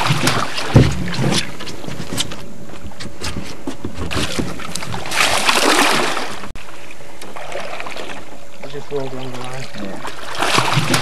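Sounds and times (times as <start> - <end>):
fish thrashing and splashing: 0.0 - 1.9, 4.1 - 6.5, 10.0 - 11.0.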